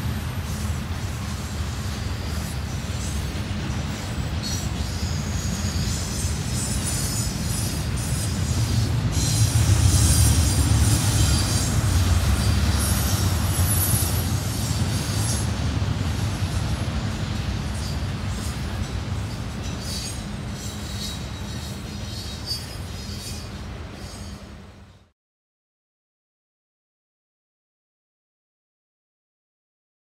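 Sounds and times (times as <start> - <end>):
train wheels rumbling on rail: 0.0 - 25.1
high-pitched wheel squeal: 4.0 - 15.5, 19.2 - 24.4.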